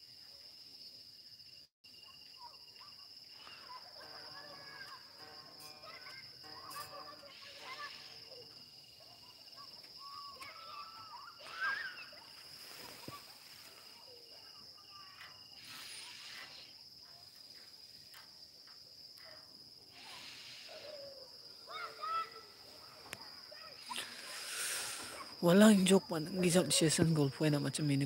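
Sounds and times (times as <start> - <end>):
chirps: 2.3 - 19.3.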